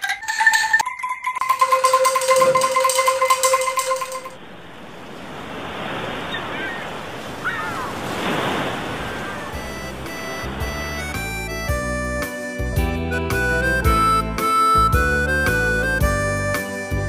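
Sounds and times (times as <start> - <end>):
bamboo angklung rattling: 0.0 - 4.4
ocean surf washing in: 3.2 - 11.6
faint bird cries: 6.3 - 8.0.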